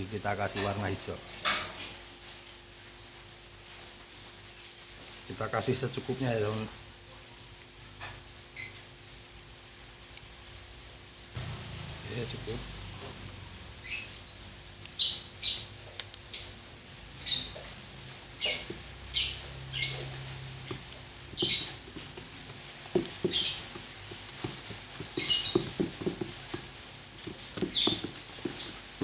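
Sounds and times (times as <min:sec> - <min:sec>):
bird chirping: 0:08.6 - 0:08.9, 0:13.8 - 0:17.7, 0:18.4 - 0:22.0, 0:23.0 - 0:23.8, 0:25.0 - 0:26.3, 0:27.6 - 0:29.0
stick stirring soapy water in bucket: 0:19.6 - 0:29.0.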